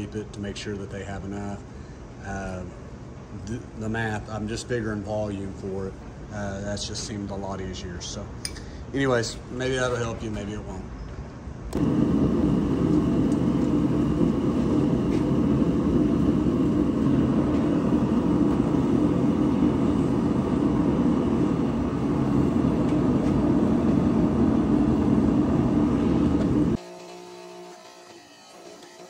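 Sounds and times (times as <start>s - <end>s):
gas forge burner roaring: 11.7s - 26.8s.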